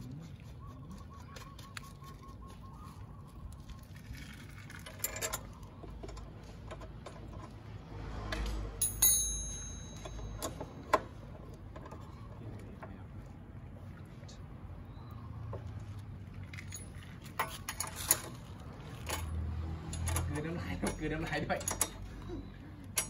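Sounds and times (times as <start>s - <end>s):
ringing metal clink: 8.8s - 10.9s, 19.9s - 22.1s.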